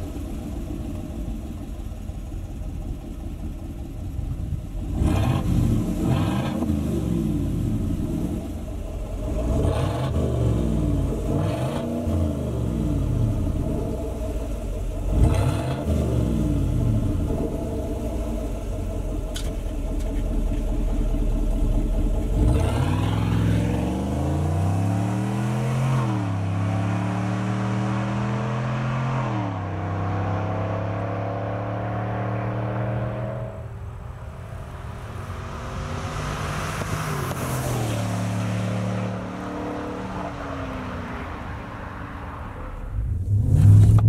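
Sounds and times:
truck exhaust rumble: 0.0 - 44.0
truck accelerating through gears: 4.9 - 19.5, 20.9 - 44.0.

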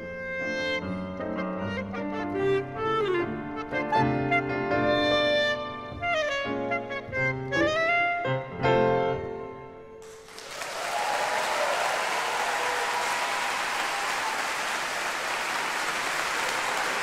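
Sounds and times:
clarinet: 0.0 - 9.3
piano: 0.0 - 17.0
audience applause: 10.0 - 17.0.

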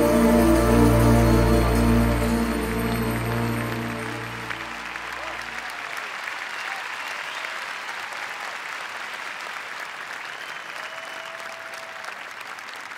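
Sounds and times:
audience applauding: 0.0 - 12.9
faint cheers: 4.6 - 8.6, 10.2 - 12.2.

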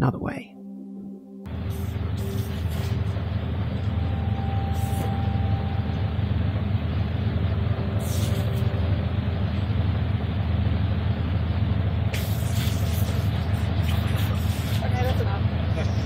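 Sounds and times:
deep rumble: 0.0 - 16.0
hissy splashes: 8.0 - 8.6, 12.1 - 15.0.

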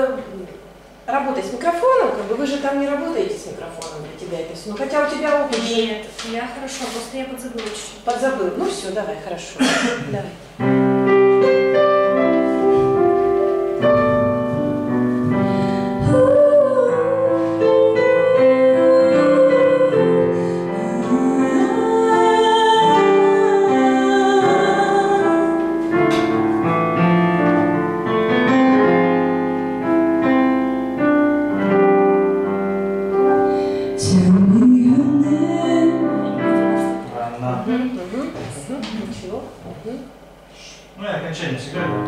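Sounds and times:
digital piano: 10.3 - 38.0, 41.2 - 42.0
woman singing into a microphone: 16.0 - 25.7, 34.0 - 37.0.

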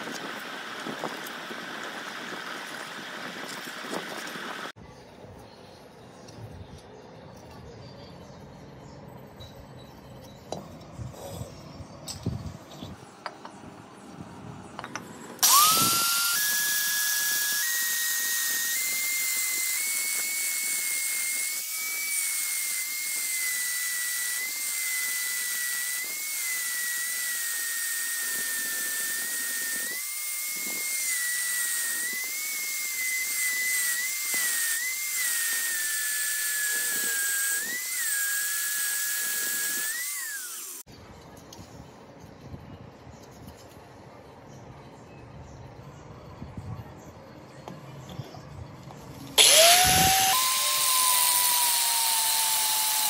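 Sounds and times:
cut-off disc power tool whining: 0.0 - 4.8, 14.8 - 40.9, 49.3 - 53.0.

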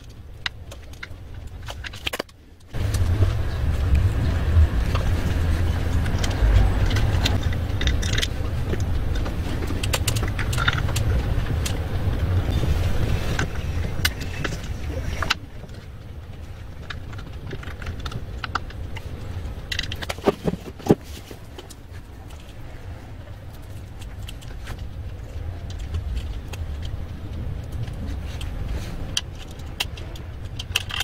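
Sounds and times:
low rumble: 2.7 - 20.0.

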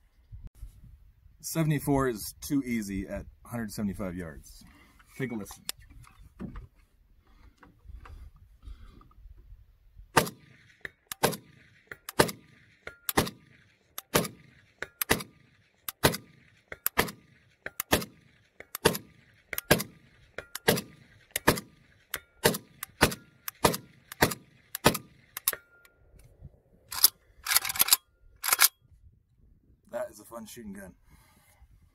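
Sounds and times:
rifle firing single shots: 10.1 - 25.6.

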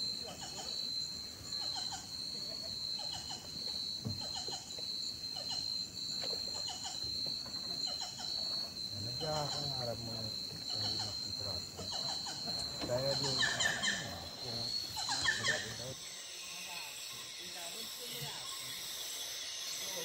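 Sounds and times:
insects droning: 0.0 - 20.0
short insect chirps: 0.0 - 20.0
man talking: 9.0 - 12.1, 12.7 - 16.0.

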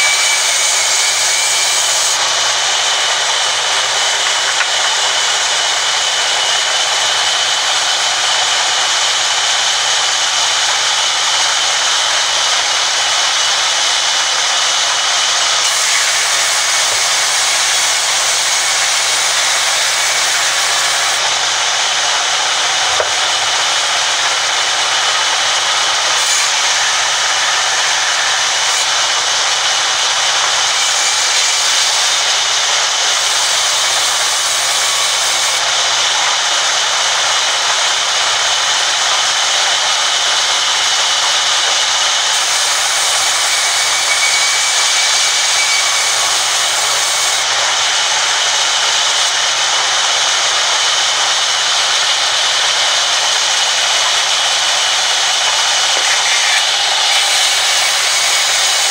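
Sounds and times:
band saw ripping wooden planks: 41.1 - 58.9.

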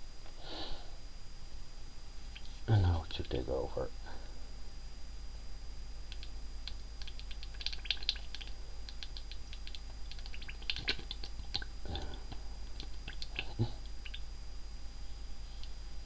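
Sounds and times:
pop-pop engine clicks and crackles: 6.1 - 14.3.

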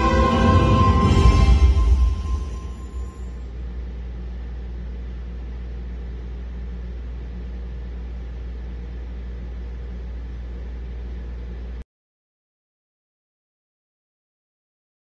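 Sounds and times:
low hum: 0.0 - 11.8.

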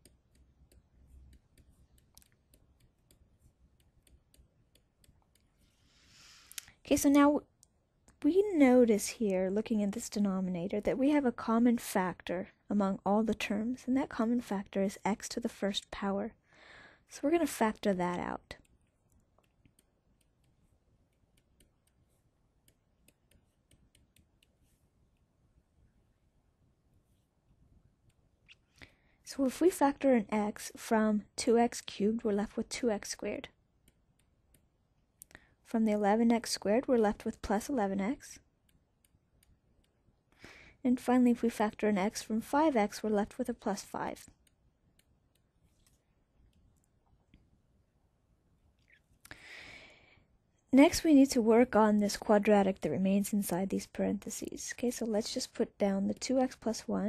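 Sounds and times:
stylus tapping on tablet screen: 0.0 - 5.6, 18.1 - 25.3.

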